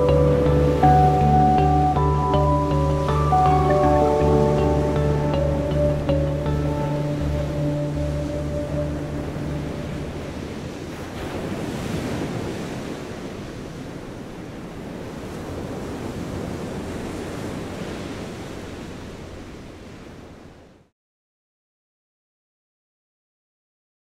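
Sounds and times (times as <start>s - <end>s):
music: 0.0s - 10.6s
ocean waves rushing: 0.0s - 20.7s
wind: 0.0s - 20.9s.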